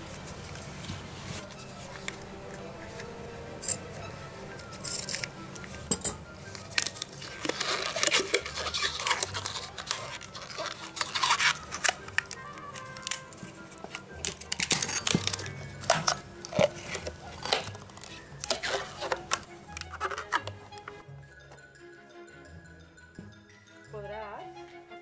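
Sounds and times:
background music: 0.0s - 25.0s
balloon rustling and snapping: 6.5s - 21.0s.

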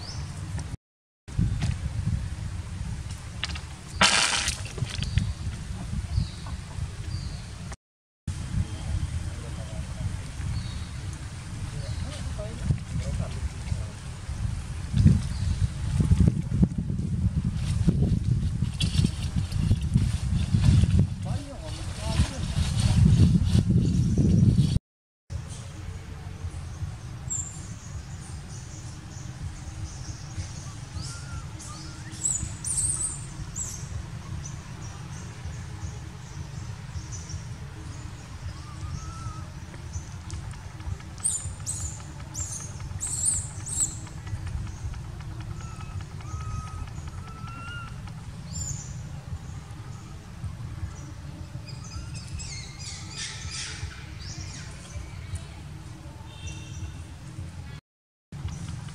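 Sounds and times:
birds chirping: 0.0s - 0.6s, 3.6s - 7.8s, 25.4s - 57.8s
low outdoor rumble: 0.0s - 24.6s, 25.3s - 57.8s, 58.4s - 58.9s.

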